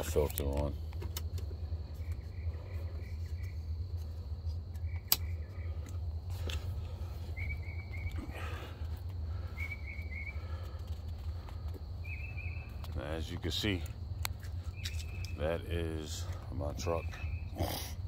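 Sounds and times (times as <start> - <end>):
insect chirping trills: 0.0 - 18.0
insects droning: 0.0 - 18.0
sharp click: 5.0 - 5.3.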